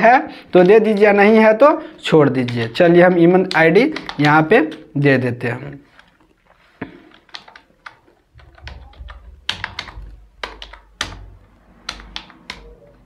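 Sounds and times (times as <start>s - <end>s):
keyboard typing: 2.2s - 4.9s, 6.8s - 13.0s.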